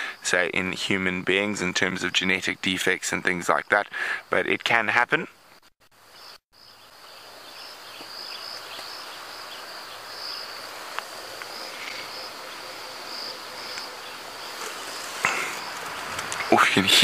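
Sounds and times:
insects chirping: 5.2 - 17.0.

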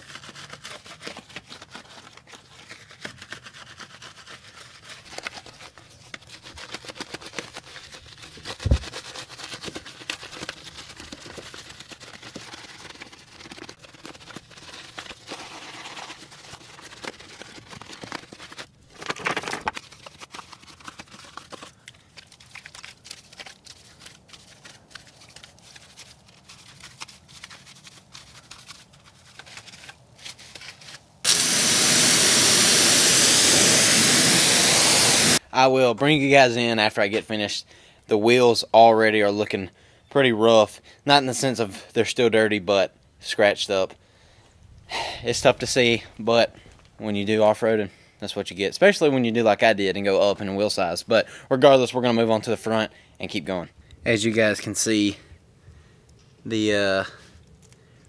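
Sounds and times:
brush scrubbing a wheel: 0.0 - 18.7, 19.8 - 35.4.

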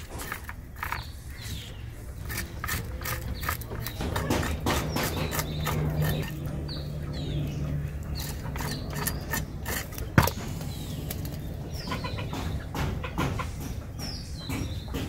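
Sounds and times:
blade scraping fish scales: 0.0 - 6.5, 8.1 - 10.4
birds chirping: 0.0 - 15.0.

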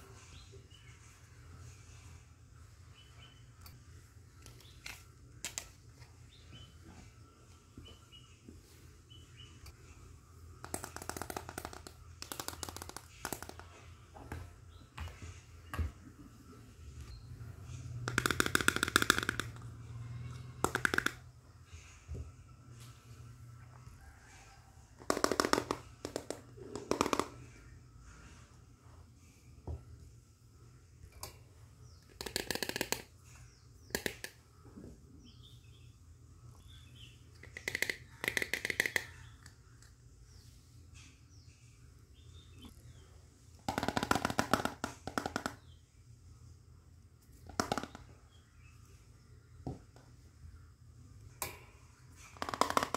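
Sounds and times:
plastic toy cookware clicking: 37.5 - 39.1.

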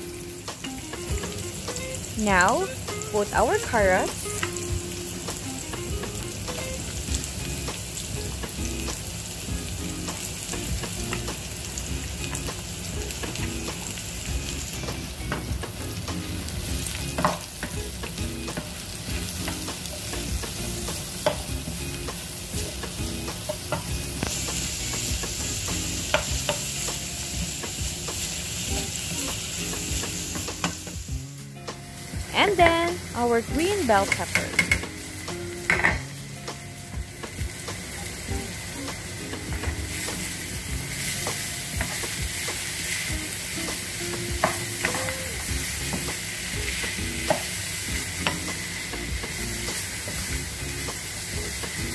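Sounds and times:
vegetables sizzling in hot oil: 0.0 - 51.9.

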